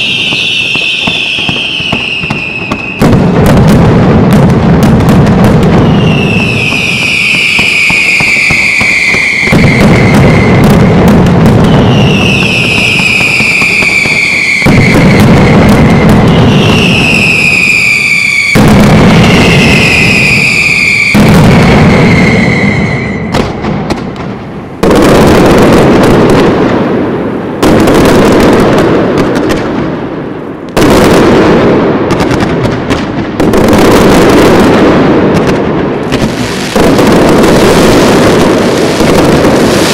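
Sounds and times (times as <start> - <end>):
fireworks crackle and rumble: 0.0 - 39.9
heavy firework blasts: 0.0 - 39.9
whistling fireworks: 0.0 - 39.9.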